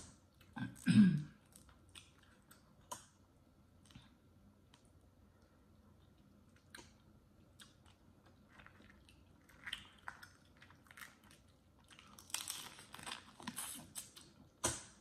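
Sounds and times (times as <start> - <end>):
crawfish shells clicking and crackling: 7.6 - 14.8
wet sucking mouth sounds: 13.5 - 14.2.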